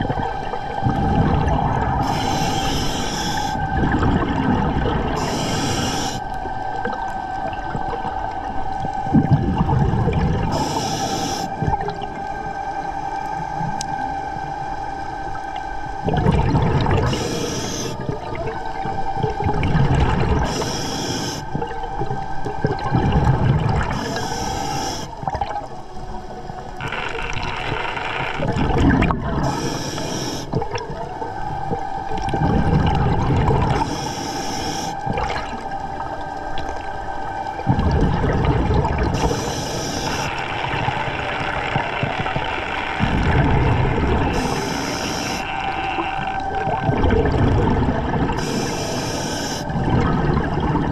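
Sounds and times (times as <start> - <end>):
exhaled bubbles rumbling: 0.0 - 14.5, 15.2 - 50.9
steady whine: 0.0 - 50.9
regulator inhalation hiss: 2.0 - 3.7, 5.2 - 6.4, 10.5 - 11.6, 17.0 - 18.0, 20.4 - 21.5, 23.9 - 25.2, 29.4 - 30.6, 33.8 - 35.0, 39.2 - 43.0, 44.2 - 46.2, 48.4 - 49.7.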